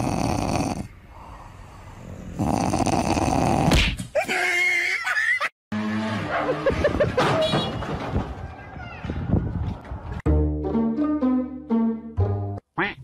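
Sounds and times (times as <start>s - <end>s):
dog snorting: 0.0s - 0.9s, 2.4s - 3.8s.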